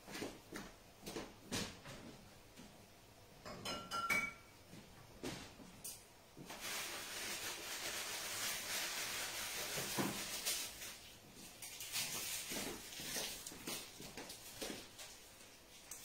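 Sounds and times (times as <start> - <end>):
kitchen items knocking and clattering: 3.4 - 4.5, 9.6 - 10.8
steady hiss: 4.8 - 16.0.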